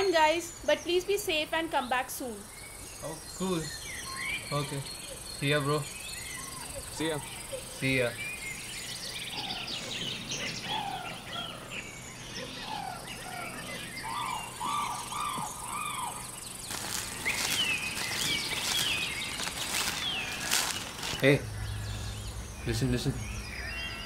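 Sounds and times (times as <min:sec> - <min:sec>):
birds singing: 0:00.0 - 0:24.0
high insect buzz: 0:12.9 - 0:22.5
footsteps crunching dry leaves: 0:14.5 - 0:22.1.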